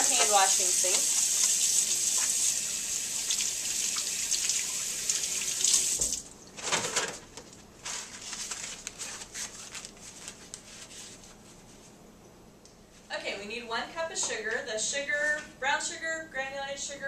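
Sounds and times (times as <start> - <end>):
tap water running into sink: 0.0 - 6.2
paper towels rustling: 6.6 - 12.0.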